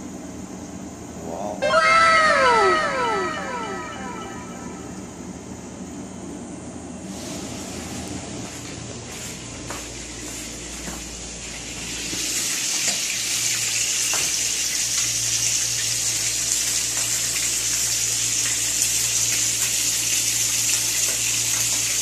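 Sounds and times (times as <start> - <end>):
low hum: 1.6 - 5.8
water running from a tap: 11.4 - 22.0.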